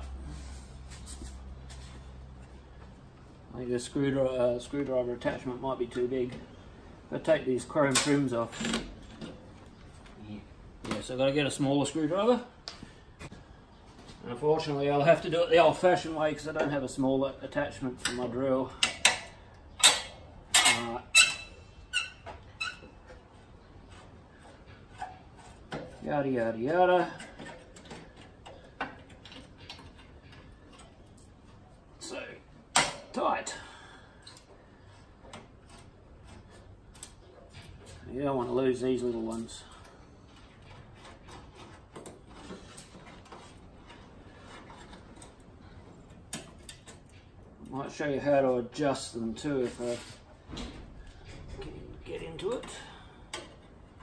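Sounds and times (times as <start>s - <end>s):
screwdriver scraping and squeaking: 20.5s - 26.1s, 39.4s - 47.2s.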